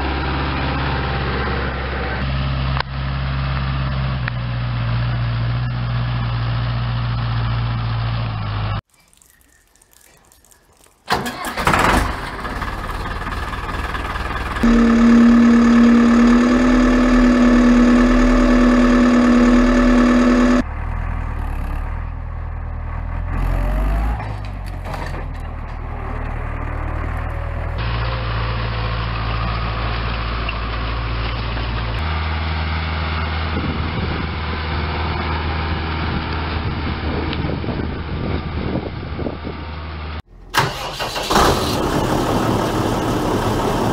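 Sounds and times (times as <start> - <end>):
tractor diesel engine running: 0.0 - 8.9, 11.0 - 43.9
steady whine: 14.6 - 20.6.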